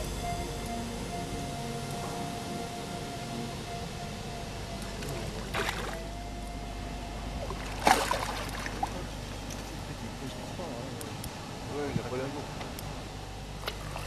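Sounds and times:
faint steady tone: 0.0s - 11.9s
water splashing: 4.8s - 6.2s, 7.4s - 9.2s.

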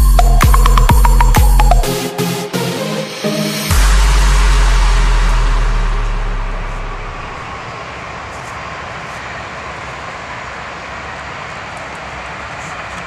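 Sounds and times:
background music: 0.0s - 7.6s
rushing outdoor background noise: 3.7s - 13.0s.

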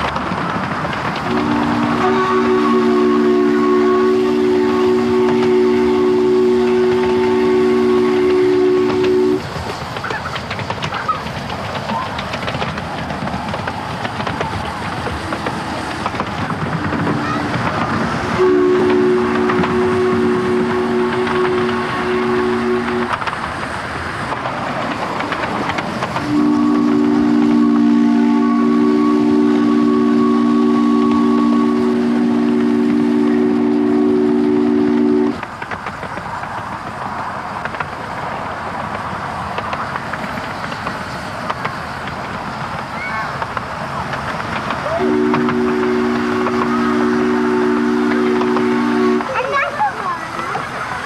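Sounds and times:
train running clatter: 0.0s - 51.0s
steam locomotive chime whistle: 1.3s - 9.4s, 18.4s - 23.2s, 26.2s - 35.4s, 44.9s - 49.5s.

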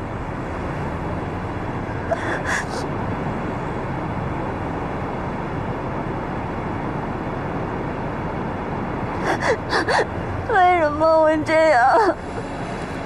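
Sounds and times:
street ambience hiss: 0.0s - 13.0s
woman sobbing: 2.1s - 2.8s, 9.2s - 10.2s, 11.6s - 12.4s.

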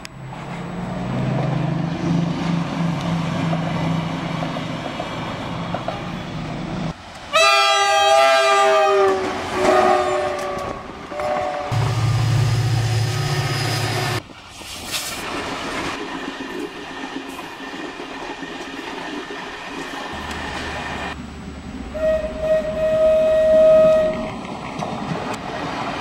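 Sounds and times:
train engine hum: 0.0s - 26.0s
train horn blasts: 7.3s - 11.9s, 21.9s - 24.3s.

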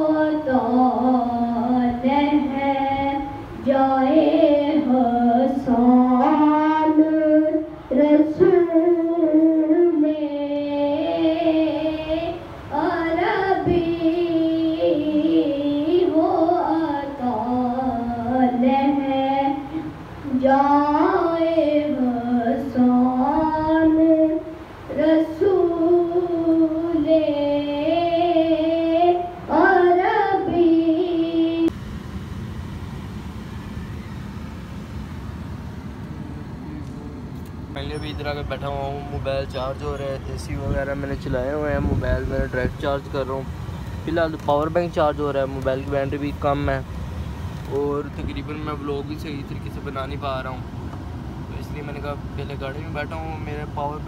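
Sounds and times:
boy singing solo: 0.0s - 31.7s.

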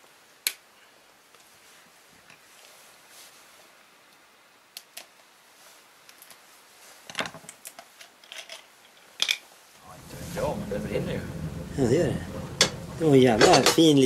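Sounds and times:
handling noises with sharp clicks: 6.0s - 6.4s.

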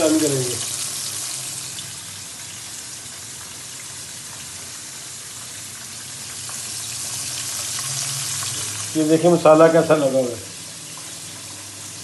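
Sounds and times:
fish deep-frying in hot oil: 0.0s - 12.0s.

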